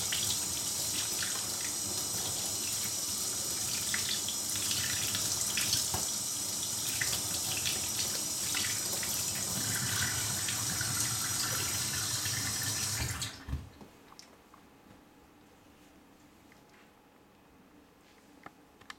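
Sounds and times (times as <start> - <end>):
faucet water splashing into sink: 0.0 - 13.4
faint handling sounds: 13.8 - 18.9.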